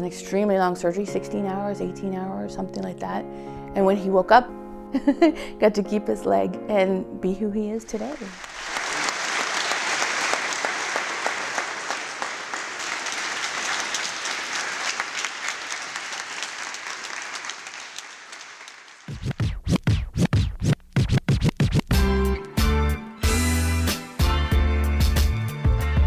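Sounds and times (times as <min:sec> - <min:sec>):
audience applauding: 0:07.9 - 0:19.3
record scratching: 0:19.1 - 0:21.9
hip-hop beat with bass thumps: 0:19.1 - 0:22.2.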